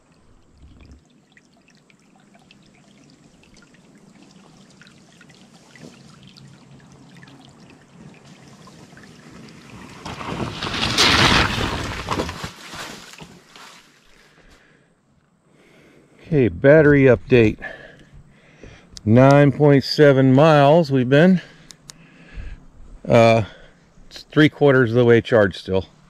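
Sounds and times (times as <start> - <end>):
electric bike riding on dirt: 7.5 - 14.0.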